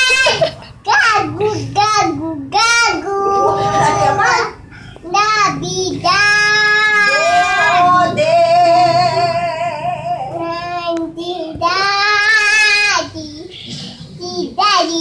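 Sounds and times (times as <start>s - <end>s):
little girl singing: 0.8s - 8.2s, 10.2s - 13.5s, 14.1s - 15.0s.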